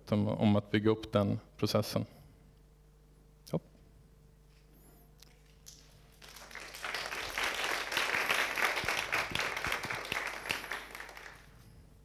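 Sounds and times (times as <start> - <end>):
audience applauding: 5.7 - 11.6.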